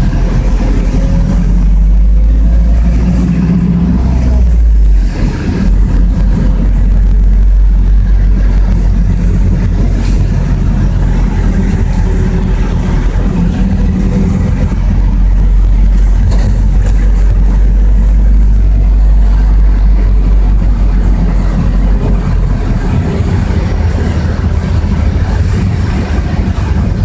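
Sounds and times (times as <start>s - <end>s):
bus engine and road rumble: 0.0s - 27.0s.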